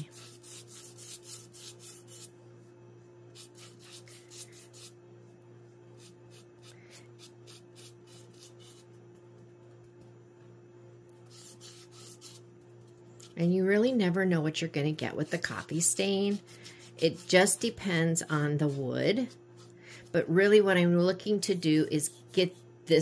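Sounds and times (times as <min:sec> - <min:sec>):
foam brush scratching on wood: 0:00.0 - 0:02.4, 0:03.3 - 0:05.0, 0:11.3 - 0:12.5, 0:15.1 - 0:19.8, 0:21.6 - 0:22.7.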